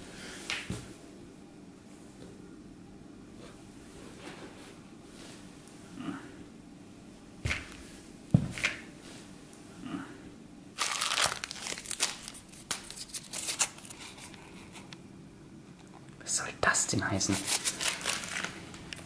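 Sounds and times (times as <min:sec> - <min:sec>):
paper crinkling and rustling: 0:10.8 - 0:14.9, 0:17.3 - 0:19.0.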